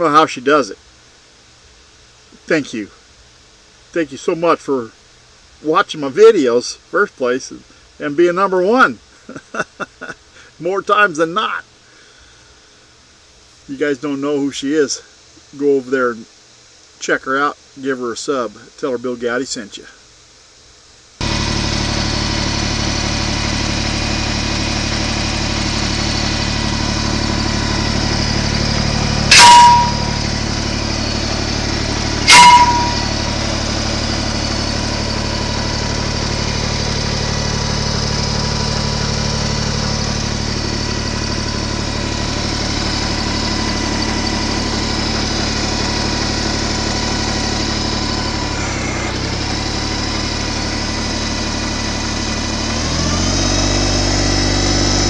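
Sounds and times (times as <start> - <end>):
tractor engine idling: 21.2 - 55.0
loud sharp bangs: 27.4 - 31.2, 32.1 - 33.4.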